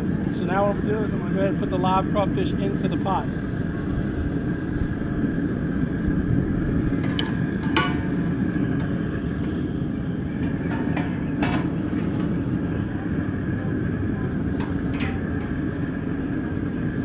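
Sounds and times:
gas burner roaring: 0:00.0 - 0:17.0
water boiling: 0:00.0 - 0:17.0.

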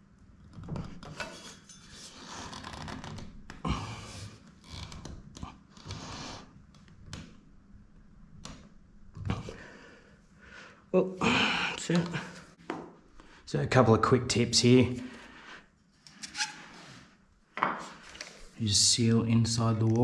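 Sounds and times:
scraping and rubbing on fitting: 0:00.9 - 0:03.2, 0:16.0 - 0:17.2.

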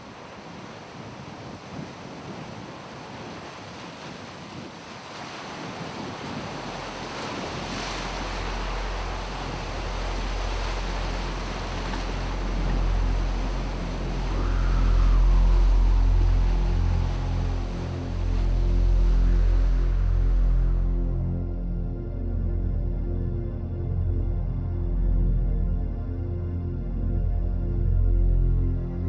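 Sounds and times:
waves breaking on rocky shore: 0:00.0 - 0:20.1
wind: 0:00.0 - 0:29.0
deep steady drone: 0:06.4 - 0:29.0.

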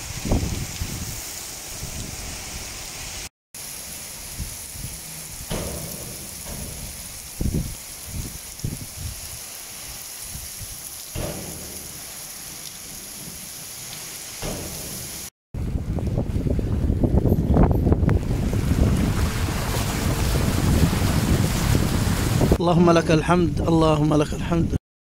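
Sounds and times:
heavy rain pouring: 0:00.0 - 0:17.2, 0:17.9 - 0:22.6
sharp rain hits: 0:00.0 - 0:22.6
low rumbling: 0:15.6 - 0:22.6.

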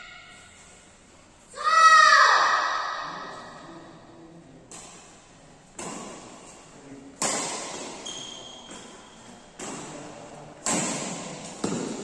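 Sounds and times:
rackets hitting shuttlecock: 0:04.7 - 0:06.6, 0:07.2 - 0:12.0
brief high squeak: 0:08.0 - 0:08.7.

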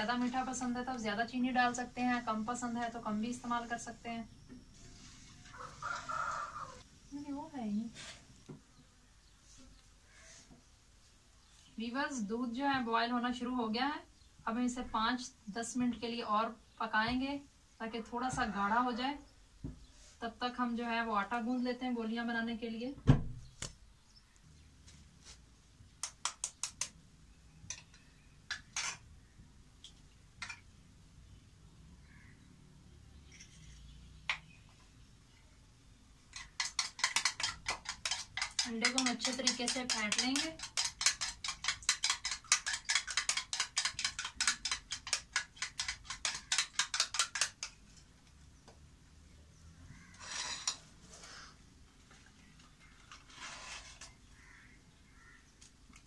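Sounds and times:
spoon and egg tapping bowls: 0:36.3 - 0:47.8.

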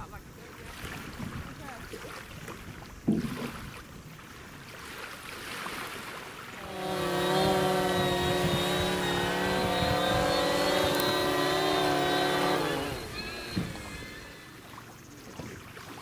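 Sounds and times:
drone propellers buzzing: 0:06.6 - 0:14.8
motors winding down: 0:06.6 - 0:14.9.

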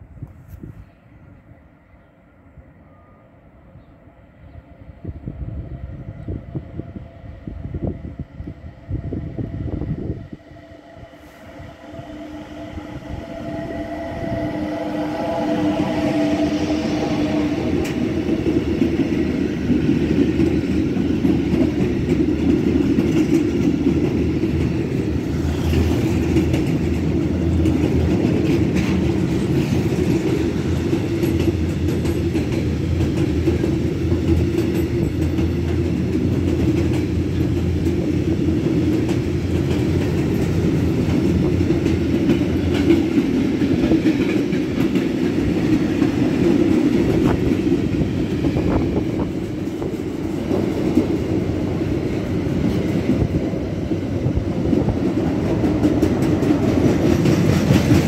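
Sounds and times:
freight train rumbling: 0:00.0 - 0:58.0.

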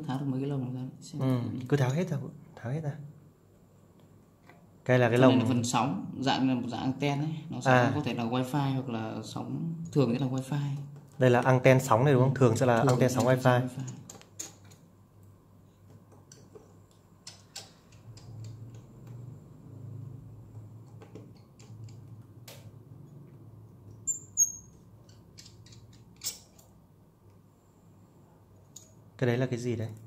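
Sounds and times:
screwdriver clicks and taps: 0:20.8 - 0:22.7
short high squeaks: 0:24.0 - 0:24.8.

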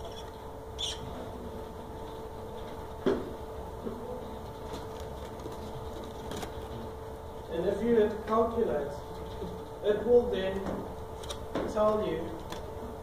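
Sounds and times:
steady electrical hum: 0:00.0 - 0:13.0.

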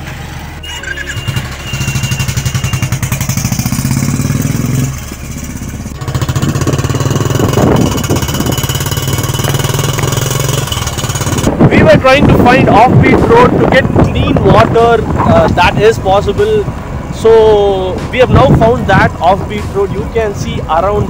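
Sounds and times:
motorcycle engine: 0:00.0 - 0:19.3
wind buffeting microphone: 0:06.1 - 0:21.0.

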